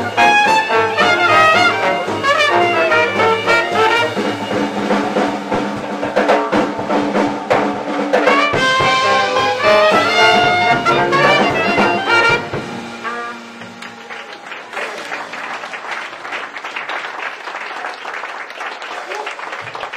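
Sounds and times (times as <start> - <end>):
ragtime jazz band playing: 0.0 - 16.9
audience applause: 10.4 - 19.9.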